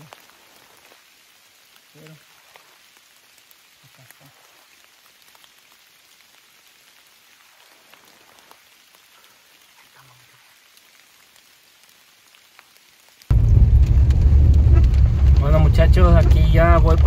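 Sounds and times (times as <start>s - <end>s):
light rain on leaf litter: 0.0s - 17.0s.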